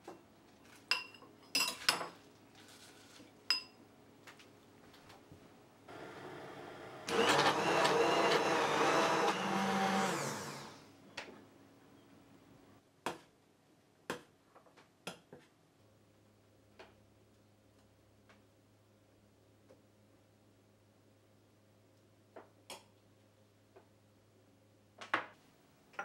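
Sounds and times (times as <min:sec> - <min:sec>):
immersion blender running: 0:05.9 - 0:10.9.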